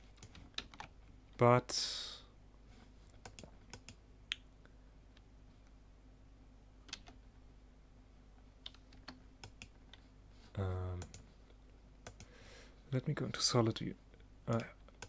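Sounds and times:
faint electrical hum: 0:00.0 - 0:15.0
keyboard and mouse clicks: 0:00.2 - 0:01.0, 0:03.2 - 0:04.0, 0:06.9 - 0:07.2, 0:08.6 - 0:10.0, 0:12.0 - 0:12.3, 0:14.5 - 0:15.0.

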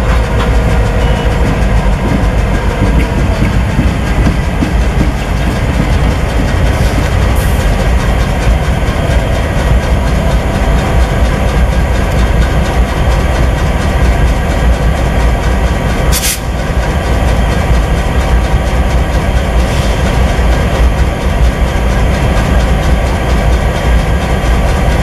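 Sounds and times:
diesel locomotives idling: 0:00.0 - 0:25.0
air hiss: 0:16.1 - 0:16.5.

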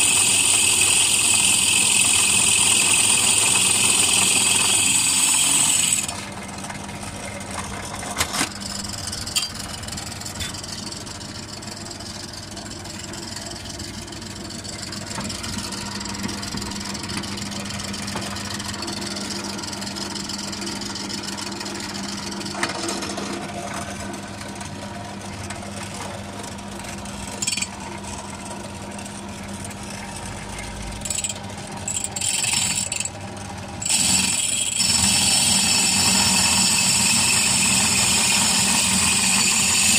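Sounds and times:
drill bit grinding glass: 0:00.0 - 0:06.3, 0:27.4 - 0:27.8, 0:31.0 - 0:33.2, 0:33.8 - 0:39.9
drill press motor running: 0:00.0 - 0:39.9.

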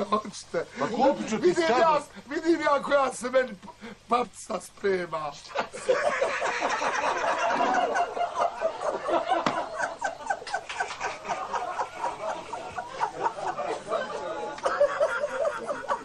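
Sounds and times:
hearty human laughter: 0:05.5 - 0:16.0.

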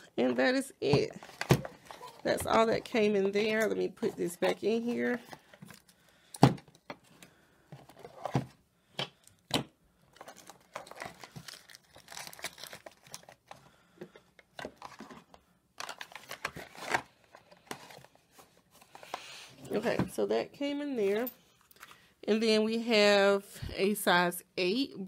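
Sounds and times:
cardboard rustling and crinkling: 0:00.9 - 0:05.9, 0:10.1 - 0:13.6, 0:14.5 - 0:19.2.

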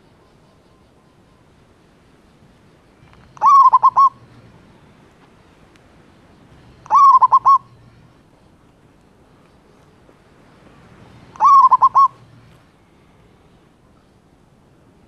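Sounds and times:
dove cooing: 0:03.2 - 0:04.2, 0:06.7 - 0:07.8, 0:11.3 - 0:12.3.

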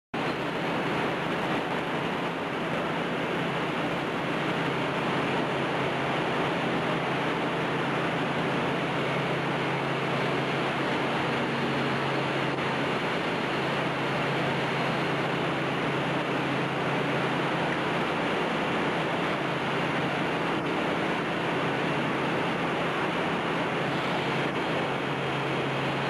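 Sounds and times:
factory machinery running: 0:00.2 - 0:26.0
low hum: 0:00.2 - 0:26.0.

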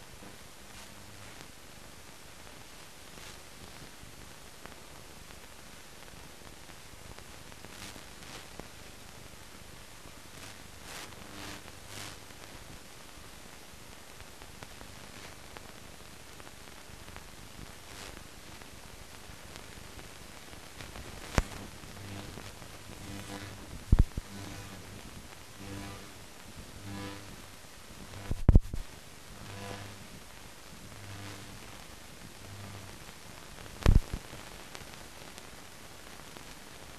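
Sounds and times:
soundtrack hiss: 0:00.0 - 0:36.9.

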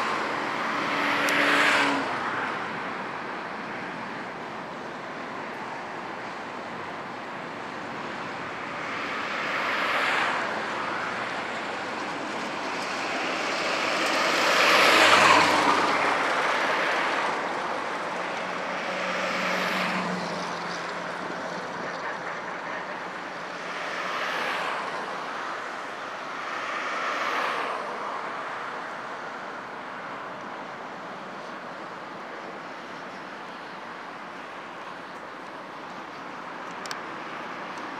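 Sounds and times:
jet engines roaring: 0:00.0 - 0:37.9.

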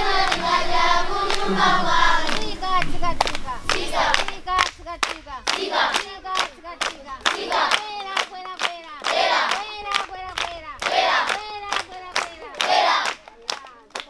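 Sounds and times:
group singing and chanting: 0:00.0 - 0:14.0
hand claps: 0:00.2 - 0:00.6, 0:02.2 - 0:14.0
group shouts: 0:08.9 - 0:09.6, 0:10.8 - 0:13.2.

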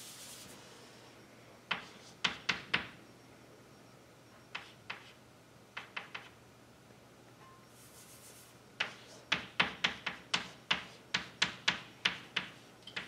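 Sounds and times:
chalk tapping on blackboard: 0:01.7 - 0:02.9, 0:04.5 - 0:05.2, 0:05.8 - 0:06.3, 0:07.9 - 0:13.0.

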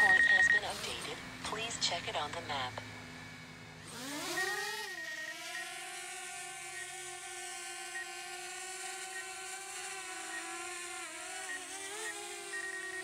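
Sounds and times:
drone propellers whining: 0:00.0 - 0:13.0.

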